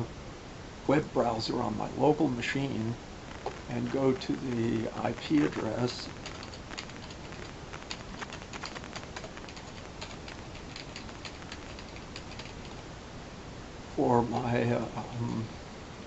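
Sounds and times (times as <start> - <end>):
steady background hiss: 0.0 - 16.0
typing on computer keyboard: 6.2 - 12.8.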